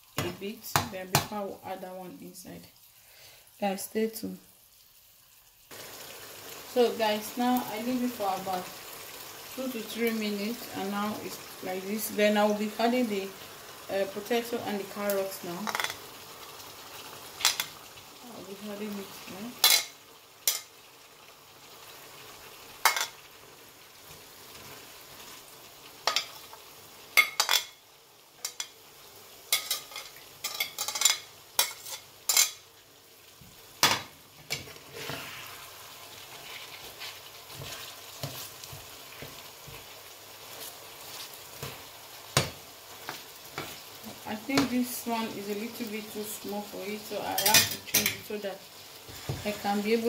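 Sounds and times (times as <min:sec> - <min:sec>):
faint sizzle: 0:00.0 - 0:50.0
spatula stirring pan: 0:19.6 - 0:20.9, 0:28.4 - 0:28.8, 0:29.5 - 0:32.7, 0:33.3 - 0:45.3, 0:47.0 - 0:50.0
metal spatula scraping a plate: 0:34.9 - 0:35.6.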